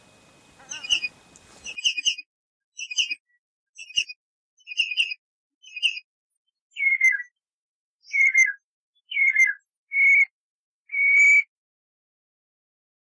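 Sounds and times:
redshank whistled calls: 0:00.6 - 0:02.2, 0:02.8 - 0:06.1, 0:06.7 - 0:07.4, 0:08.0 - 0:11.5.

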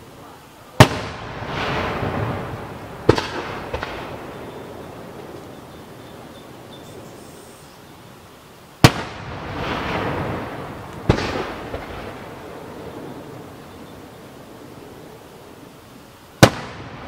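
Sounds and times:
rumbling tail: 0:00.8 - 0:06.7, 0:09.0 - 0:15.2.

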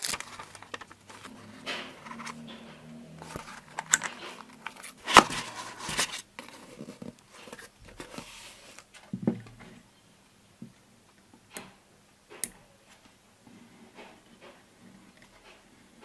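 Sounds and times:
cardboard and foam rustling: 0:00.0 - 0:02.5, 0:03.2 - 0:09.2.

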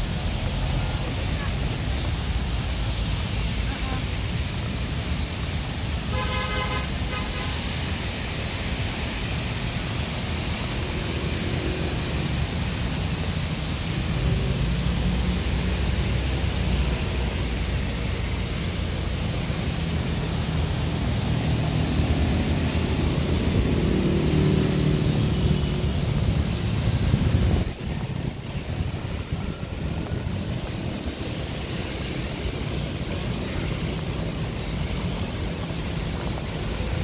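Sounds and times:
engines rumbling: 0:00.0 - 0:37.0
tyres hissing on wet road: 0:00.0 - 0:37.0
vehicle horn: 0:06.1 - 0:07.6.

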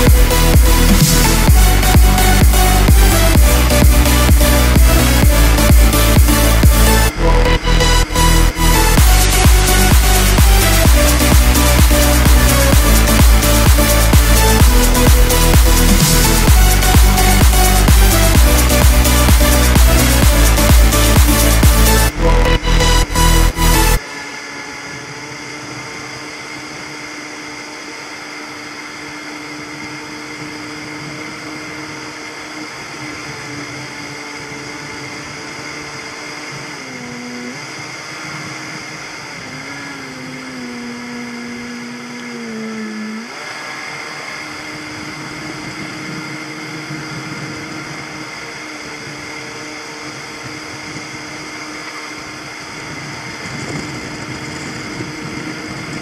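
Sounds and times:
motorboat engine running: 0:00.0 - 0:56.0
rush of wake and wind: 0:24.0 - 0:56.0.

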